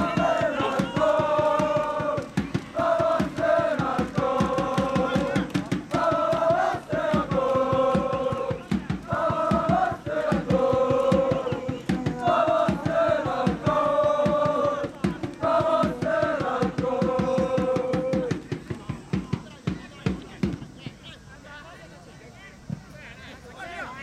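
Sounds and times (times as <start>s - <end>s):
supporters singing a chant: 0.0s - 19.1s
steady beat: 0.0s - 20.8s.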